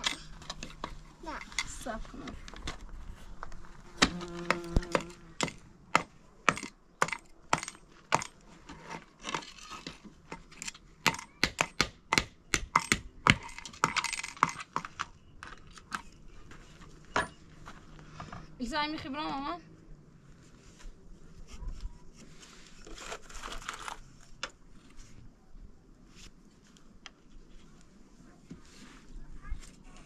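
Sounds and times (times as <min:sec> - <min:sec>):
hammer striking nails into wood: 0:04.0 - 0:08.3, 0:11.0 - 0:14.9.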